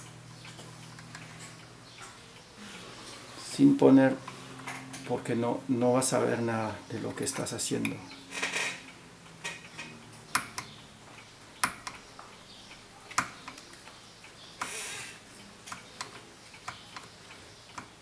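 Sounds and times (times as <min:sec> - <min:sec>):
metallic clicks and taps: 0:09.4 - 0:14.0, 0:15.6 - 0:18.0.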